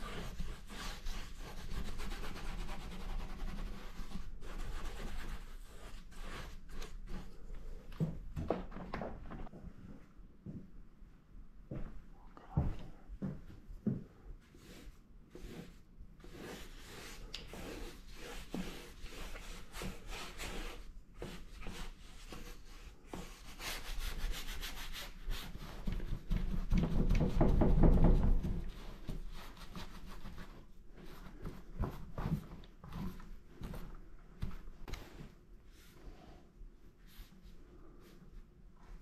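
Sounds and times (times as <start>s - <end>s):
paintbrush scrubbing on paper: 0.0s - 7.4s, 14.5s - 31.6s.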